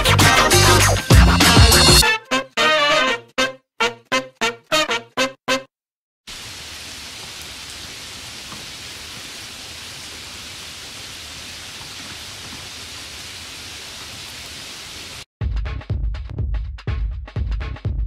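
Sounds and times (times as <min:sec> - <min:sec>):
steady rain: 0:06.3 - 0:15.3.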